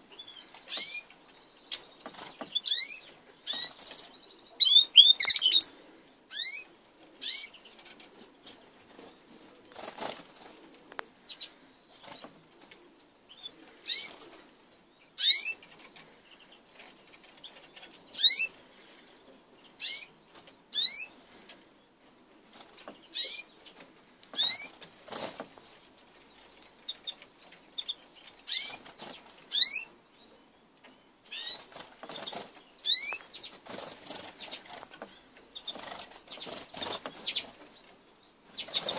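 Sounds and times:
finches chirping: 0.1s - 7.9s, 26.4s - 29.9s, 31.3s - 38.9s
wings fluttering: 9.7s - 10.8s, 23.7s - 27.2s, 28.5s - 29.6s, 31.4s - 38.9s.

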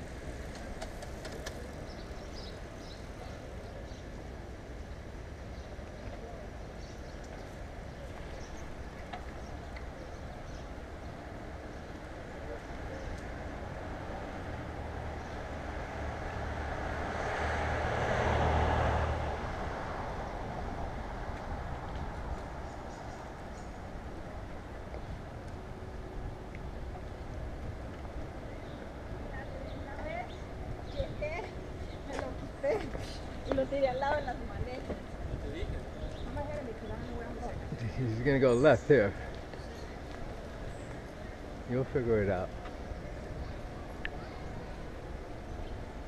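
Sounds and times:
street traffic: 0.0s - 46.0s
wind rush on microphone: 17.8s - 25.3s, 34.4s - 38.2s.

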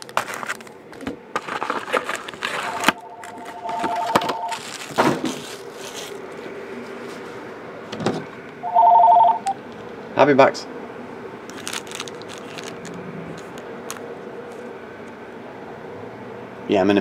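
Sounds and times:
foil card packs crinkling: 0.0s - 6.5s, 11.5s - 14.6s
electronic telephone ring: 2.6s - 4.6s, 8.6s - 9.6s.

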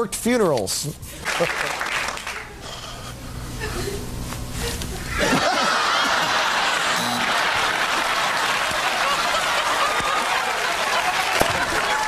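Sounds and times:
audience applauding: 1.2s - 2.6s, 5.4s - 12.0s
audience laughing: 4.6s - 12.0s.

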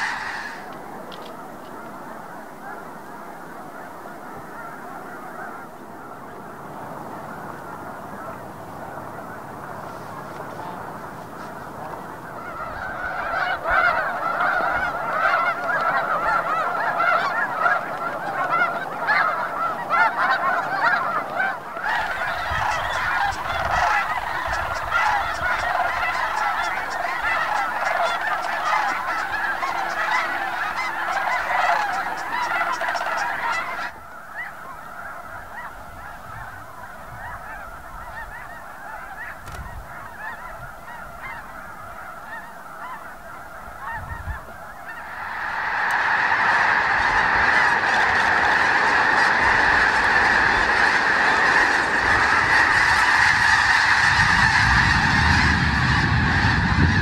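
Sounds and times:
flock of geese honking: 0.0s - 57.0s.

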